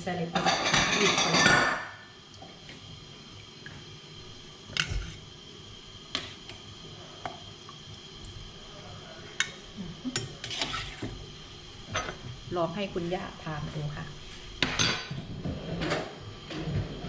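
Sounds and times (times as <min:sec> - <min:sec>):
faint steady hum: 0:00.0 - 0:17.0
utensils clinking on a pot: 0:00.3 - 0:02.0, 0:11.9 - 0:12.2, 0:14.6 - 0:16.1.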